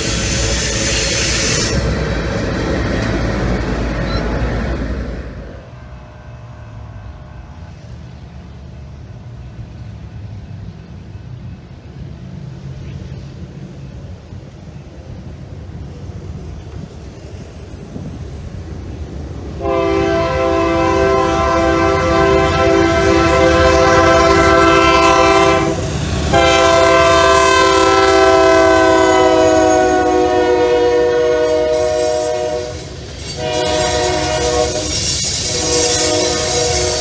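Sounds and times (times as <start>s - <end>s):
locomotive engine rumble: 0.0s - 37.0s
locomotive air horn blasts: 19.6s - 37.0s.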